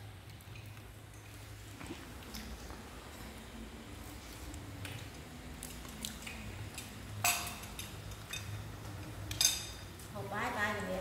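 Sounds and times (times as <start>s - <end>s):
utensil clinking on dish: 6.8s - 9.9s.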